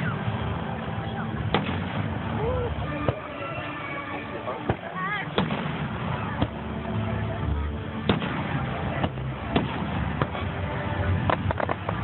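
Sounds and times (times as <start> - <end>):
steady background noise: 0.0 - 12.0
fireworks bursting: 1.4 - 6.8, 8.0 - 12.0.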